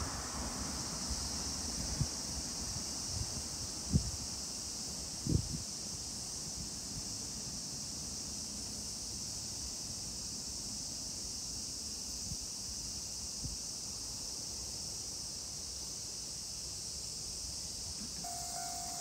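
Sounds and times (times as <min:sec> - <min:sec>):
wind rumble on microphone: 0:00.0 - 0:04.4, 0:05.2 - 0:05.8
insect chorus buzzing: 0:00.0 - 0:19.0.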